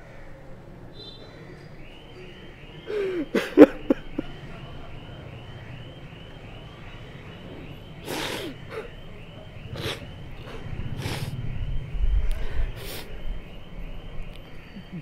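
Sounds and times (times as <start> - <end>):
elderly man sobbing: 2.8 - 4.4, 8.0 - 9.0.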